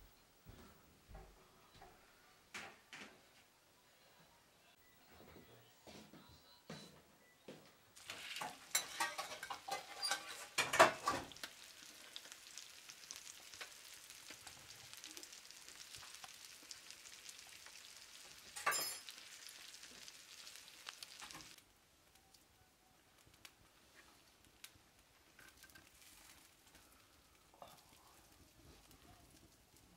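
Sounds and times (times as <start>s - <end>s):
fish sizzling in hot oil: 8.0s - 21.6s
oil spitting crackles: 8.0s - 21.6s.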